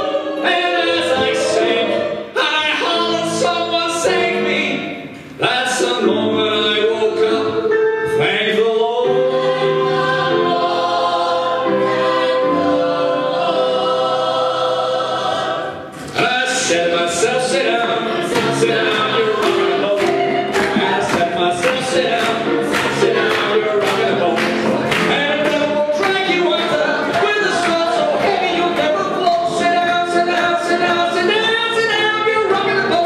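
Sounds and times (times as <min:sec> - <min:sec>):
man singing lead: 0:00.0 - 0:09.3, 0:16.1 - 0:33.0
ensemble of singers: 0:00.0 - 0:33.0
grand piano: 0:00.0 - 0:33.0.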